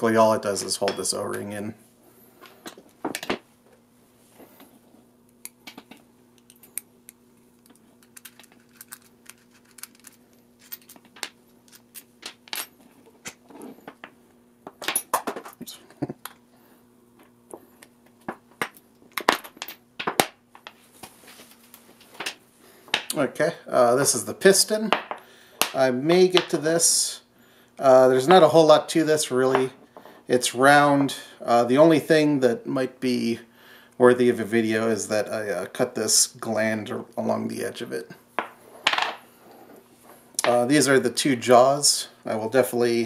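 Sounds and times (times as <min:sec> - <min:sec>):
faint steady hum: 0:00.0 - 0:43.0
metal parts clicking and clinking: 0:07.6 - 0:13.4
metal parts clattering: 0:08.0 - 0:12.7.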